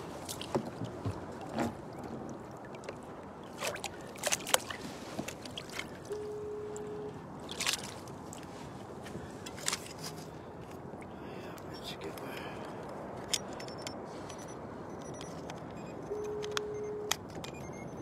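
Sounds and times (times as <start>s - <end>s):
water around kayak: 0.0s - 18.0s
short steady tone: 6.1s - 7.2s, 13.6s - 18.0s
gear clicks and knocks: 9.4s - 10.2s.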